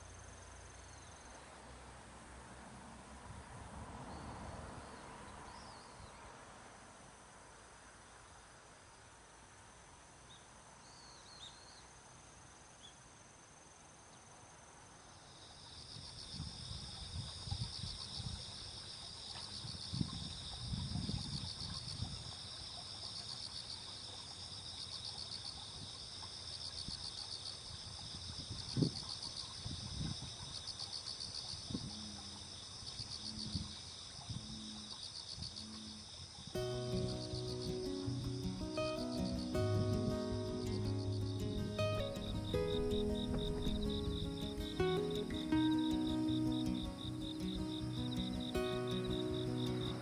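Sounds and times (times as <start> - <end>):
insects trilling: 10.3 - 50.0.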